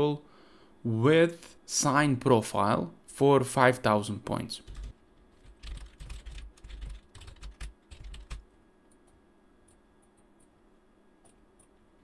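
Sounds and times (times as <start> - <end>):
computer keyboard typing: 4.6 - 8.4.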